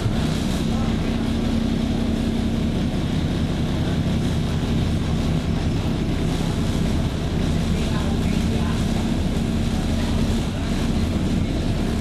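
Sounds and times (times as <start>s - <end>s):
engine hum: 0.0s - 12.0s
vehicle rumble on wet road: 0.0s - 12.0s.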